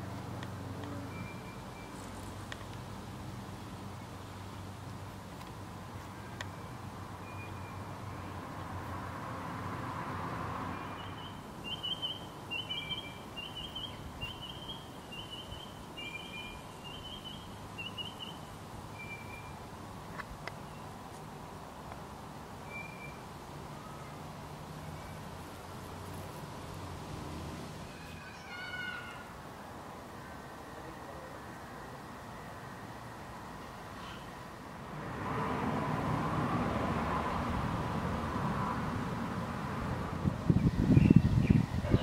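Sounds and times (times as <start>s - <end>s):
bird chirping: 1.0s - 2.6s, 6.2s - 8.7s, 10.7s - 19.7s, 22.6s - 24.2s, 40.6s - 42.0s.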